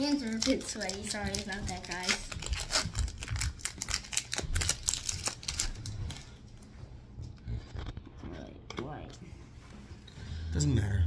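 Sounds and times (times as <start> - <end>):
foil wrapper crinkling and tearing: 0.0 - 6.3.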